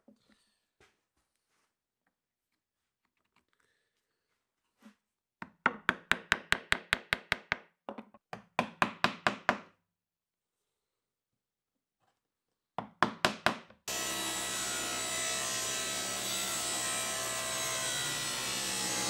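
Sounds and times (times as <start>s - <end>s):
wooden mallet tapping a chisel: 5.4s - 9.7s.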